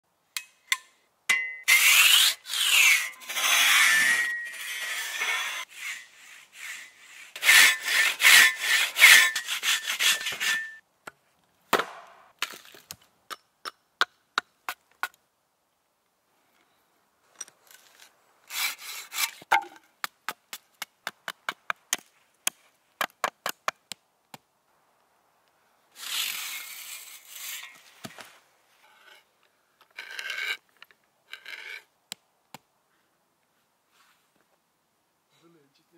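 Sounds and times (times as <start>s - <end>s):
hand auger grinding into wood: 1.7s - 10.8s, 26.0s - 28.3s, 29.8s - 31.9s
saw rasping through log: 1.7s - 10.8s, 18.5s - 19.4s.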